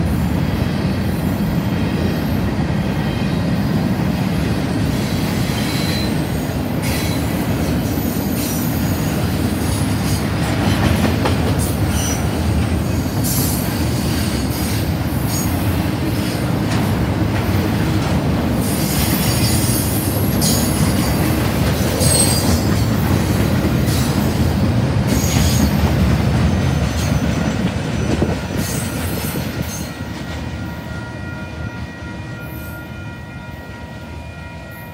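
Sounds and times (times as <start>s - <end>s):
freight train wheels rumbling: 0.0s - 34.9s.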